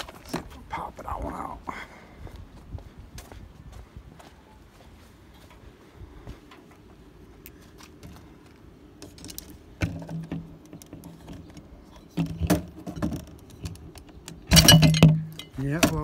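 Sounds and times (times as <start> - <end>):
door lock parts clinking: 12.2 - 16.0.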